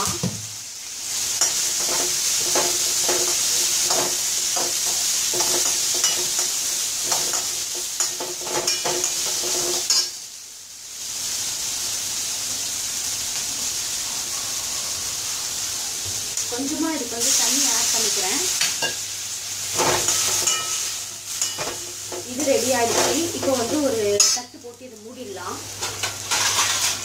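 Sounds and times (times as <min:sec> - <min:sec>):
frying sizzling: 0:00.0 - 0:27.0
spoon scraping metal pan: 0:01.4 - 0:10.1, 0:19.8 - 0:24.4, 0:25.8 - 0:27.0.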